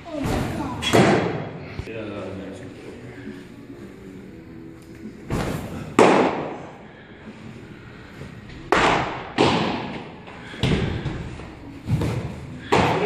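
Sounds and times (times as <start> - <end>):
baseballs popping into mitts: 8.7 - 10.9.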